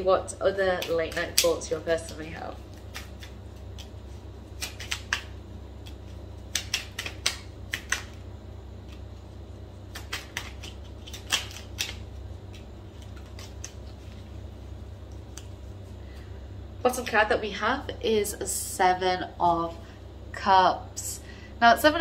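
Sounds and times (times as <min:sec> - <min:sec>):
low steady hum: 0:00.0 - 0:22.0
cards being shuffled: 0:00.7 - 0:08.2, 0:09.8 - 0:16.2.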